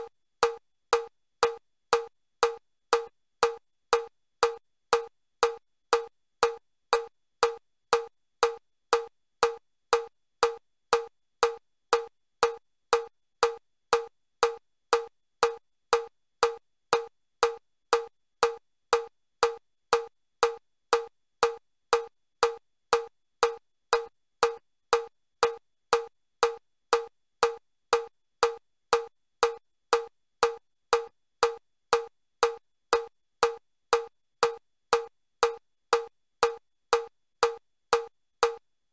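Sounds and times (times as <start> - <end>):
metronome clicks: 32.4 - 38.6.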